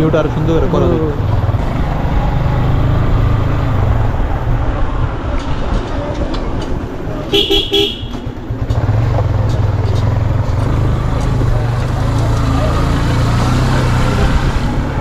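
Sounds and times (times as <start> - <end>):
motorcycle engine running: 7.2 - 15.0
vehicle horn beeps: 7.3 - 8.6.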